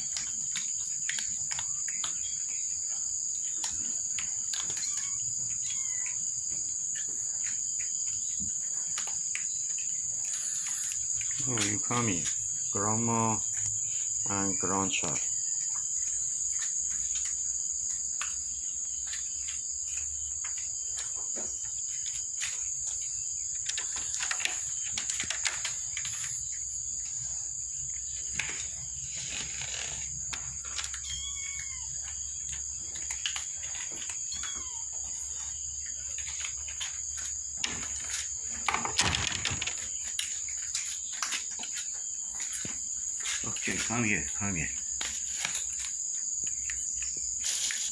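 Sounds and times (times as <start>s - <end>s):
insects chirring: 0.0s - 47.9s
short high calls: 30.9s - 32.1s.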